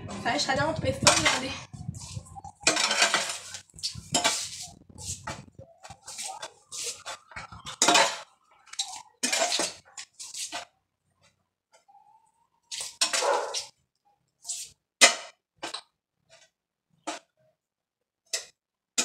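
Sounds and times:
metal hoe scraping soil on tiles: 0.0 - 10.7, 12.7 - 13.8, 14.4 - 16.5.

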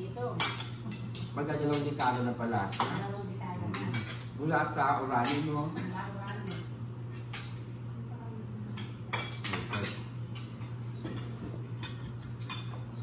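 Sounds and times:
steady low hum: 0.0 - 13.0
cutlery clinking against plates: 0.4 - 7.7, 8.7 - 13.0.

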